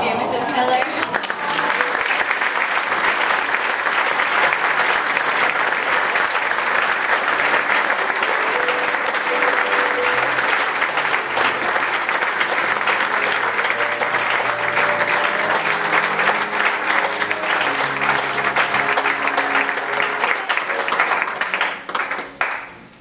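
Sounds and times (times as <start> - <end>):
applause: 0.0 - 23.0
held instrumental notes: 7.3 - 21.4.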